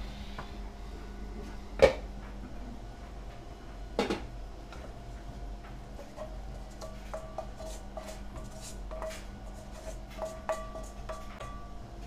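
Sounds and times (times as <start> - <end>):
steady low hum: 0.0 - 12.0
spatula scraping a pan: 6.0 - 11.6.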